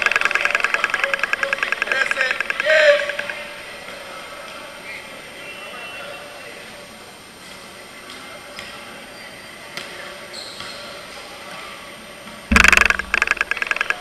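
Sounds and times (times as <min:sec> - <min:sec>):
echoing volleyball strikes: 0:12.5 - 0:14.0
rapid uneven rattling: 0:12.5 - 0:14.0
sudden loud sound: 0:12.5 - 0:14.0.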